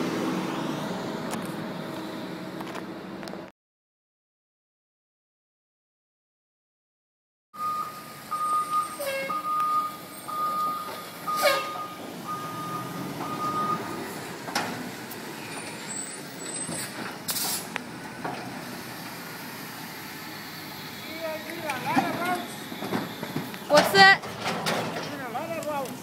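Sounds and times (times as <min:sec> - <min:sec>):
diesel engine running: 0:00.0 - 0:03.5, 0:07.6 - 0:26.0
reverse alarm beeping: 0:07.6 - 0:14.1
air-brake hiss: 0:15.9 - 0:17.7.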